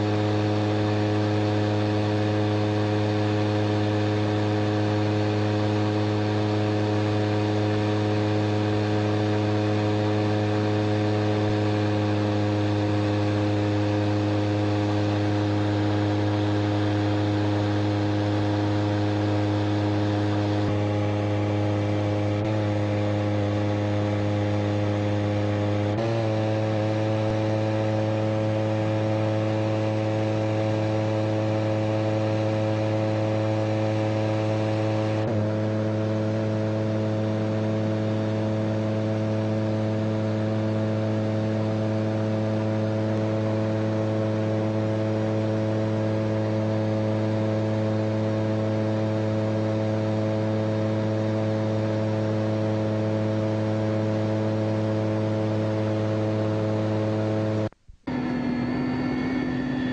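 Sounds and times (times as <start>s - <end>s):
light aircraft engine droning: 58.1s - 59.9s.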